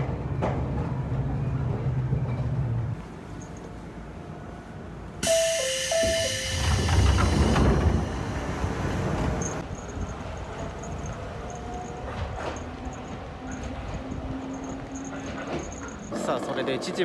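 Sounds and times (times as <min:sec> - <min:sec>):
two-note door chime: 0:05.2 - 0:08.2
train doors hissing open: 0:05.2 - 0:09.6.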